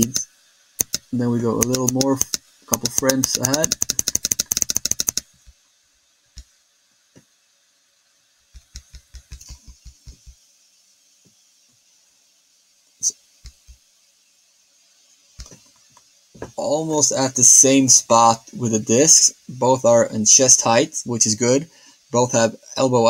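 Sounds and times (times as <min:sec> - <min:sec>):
keyboard keys clicking: 0:00.8 - 0:05.2.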